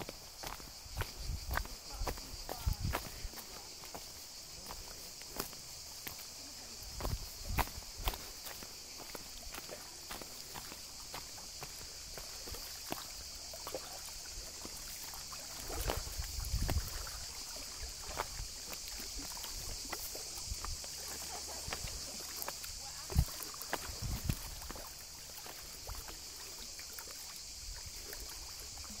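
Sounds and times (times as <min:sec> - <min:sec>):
steady high hiss: 0:00.0 - 0:29.0
wind buffeting microphone: 0:00.8 - 0:03.3, 0:15.9 - 0:17.3, 0:23.9 - 0:24.6.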